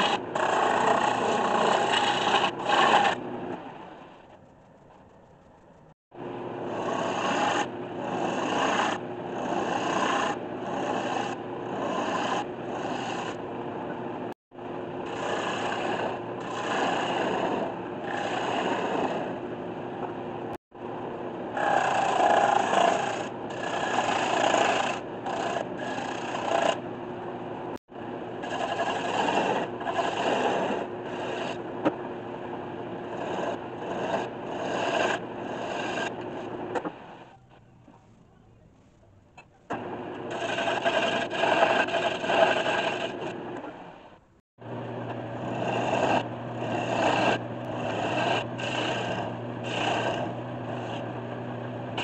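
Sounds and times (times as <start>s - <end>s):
gouge rasping on spinning wood: 0.0s - 3.3s, 6.7s - 13.4s, 15.0s - 19.4s, 21.6s - 26.8s, 28.4s - 31.6s, 33.0s - 36.5s, 40.2s - 43.4s, 45.0s - 51.2s
lathe humming: 40.2s - 43.3s, 44.6s - 52.0s.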